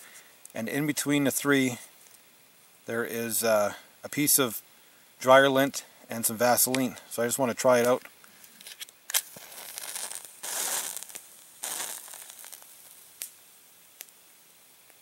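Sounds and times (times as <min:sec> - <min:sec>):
small pops: 0:07.8 - 0:13.4, 0:14.0 - 0:14.2
match heads flaring with fizzing hiss: 0:07.8 - 0:15.0
match striking on matchbox: 0:08.6 - 0:13.4.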